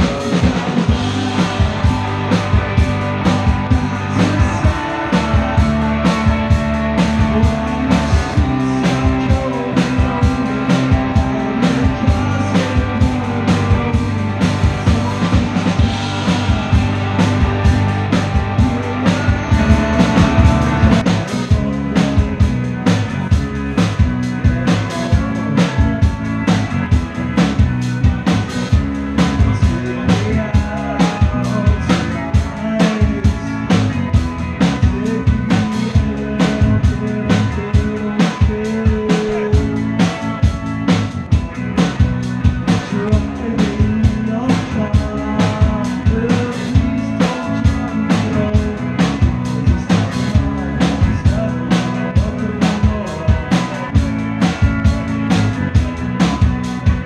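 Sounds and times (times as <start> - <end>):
bass guitar: 0.0 - 57.0
drum kit beat: 0.0 - 57.0
electric guitar: 0.0 - 57.0.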